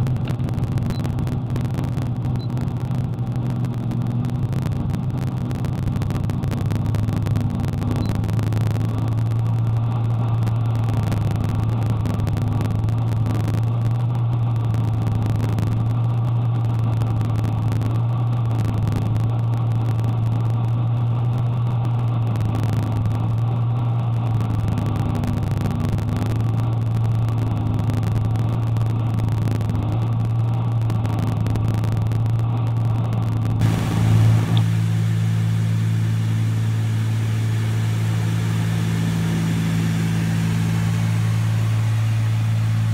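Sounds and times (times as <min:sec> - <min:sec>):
aircraft engines droning: 0:33.6 - 0:42.9
higher steady tone: 0:33.6 - 0:42.9.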